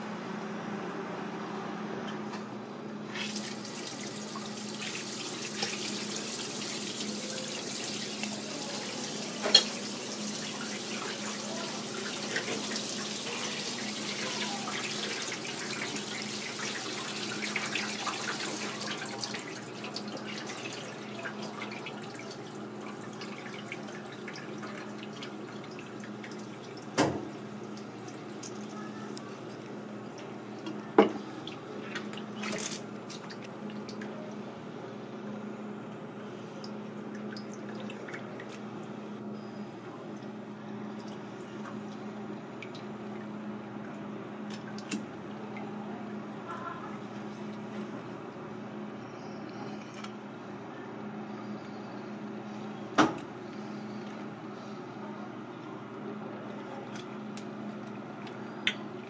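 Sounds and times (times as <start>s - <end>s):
tap water spraying: 3.1s - 22.3s, 23.2s - 28.6s.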